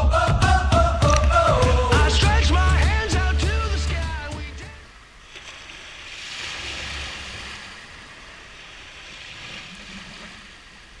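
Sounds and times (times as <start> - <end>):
small waves breaking on beach: 4.2 - 11.0.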